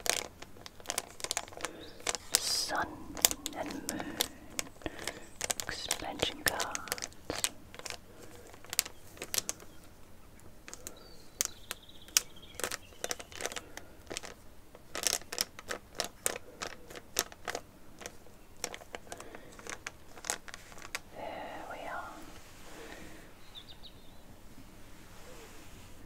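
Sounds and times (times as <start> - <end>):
taps and clicks on trading cards: 3.2 - 9.8.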